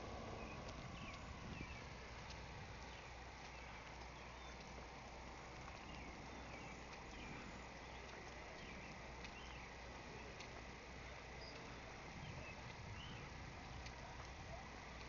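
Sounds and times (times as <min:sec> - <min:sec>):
low hum and hiss: 0:00.0 - 0:15.0
bird chirps: 0:00.3 - 0:02.0, 0:02.8 - 0:04.7, 0:11.4 - 0:13.3.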